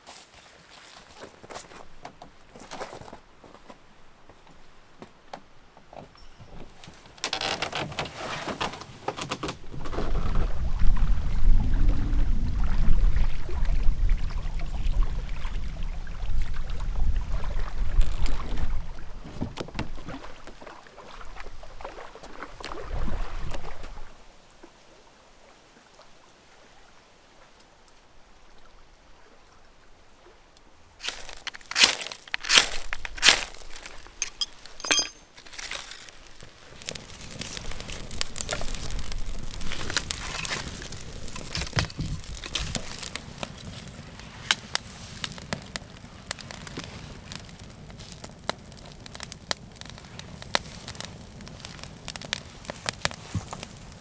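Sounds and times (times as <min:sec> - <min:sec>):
deep rumble of canoe moving: 0:08.9 - 0:24.2.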